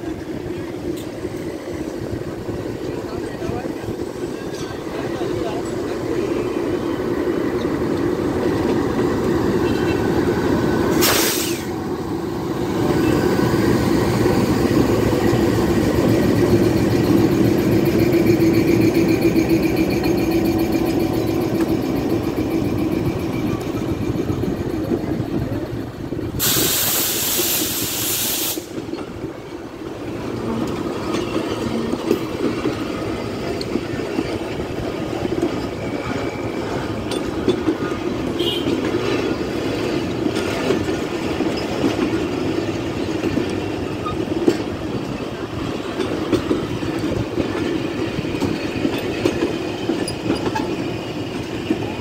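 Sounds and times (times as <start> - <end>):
diesel locomotive passing: 0.0 - 52.0
train wheels rumbling on rails: 0.0 - 52.0
air hiss: 10.9 - 11.8, 26.4 - 28.8.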